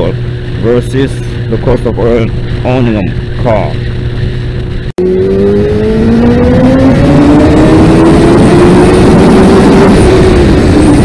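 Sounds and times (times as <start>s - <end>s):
loud rushing noise: 0.0s - 11.0s
motorcycle engine accelerating: 0.0s - 11.0s.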